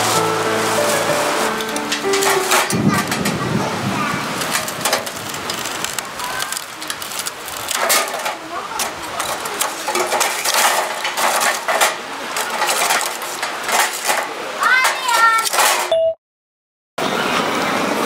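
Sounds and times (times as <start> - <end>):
rain hissing: 0.0 - 15.5
charcoal clinking against metal tongs: 1.5 - 3.4, 4.4 - 15.9.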